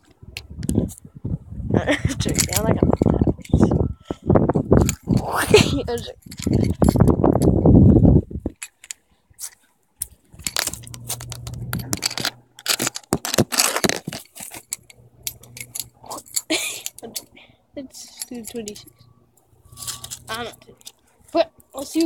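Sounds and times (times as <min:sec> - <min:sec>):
microphone handling rumble: 0:00.3 - 0:08.6, 0:10.3 - 0:12.5
phone handling clicks and scrapes: 0:08.5 - 0:17.1, 0:18.3 - 0:21.2
faint low hum: 0:10.0 - 0:13.0, 0:14.0 - 0:22.0.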